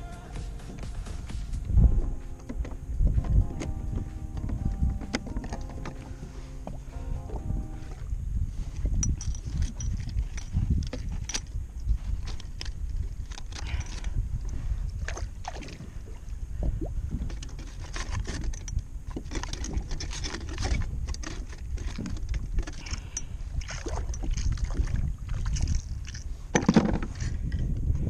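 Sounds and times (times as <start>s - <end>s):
wind rumble on microphone: 0.0s - 28.0s
knocks and scrapes on plastic kayak: 26.4s - 27.5s.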